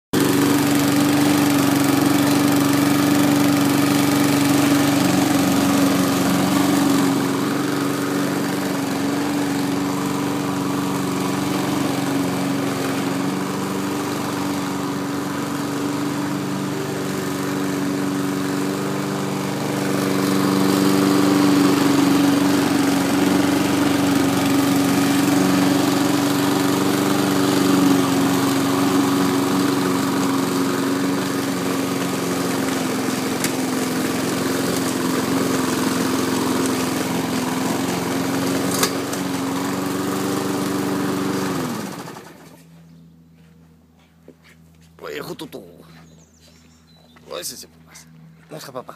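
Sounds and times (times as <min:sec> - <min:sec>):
engine droning hum: 0:42.4 - 0:48.9.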